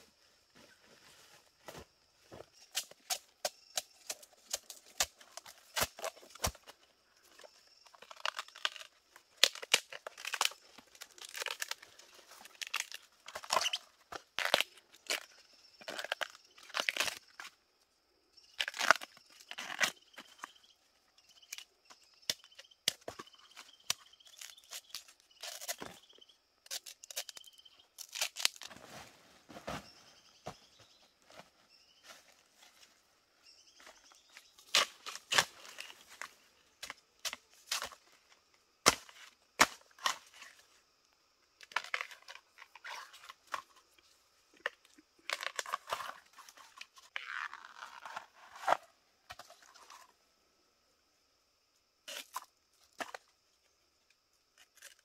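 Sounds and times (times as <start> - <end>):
knife cracking bamboo shoots: 26.6 - 28.7.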